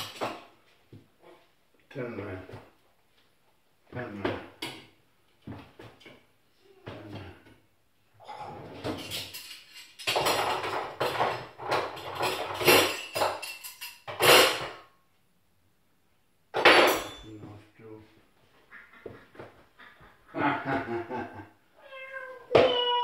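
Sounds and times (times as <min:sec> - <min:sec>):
dishes and utensils clattering: 0:00.0 - 0:00.5, 0:08.2 - 0:14.9, 0:16.5 - 0:17.4.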